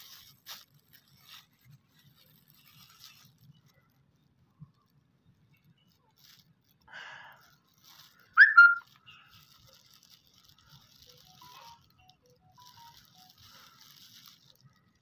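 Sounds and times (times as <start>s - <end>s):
breathy rustle: 6.7s - 8.4s, 12.6s - 15.0s.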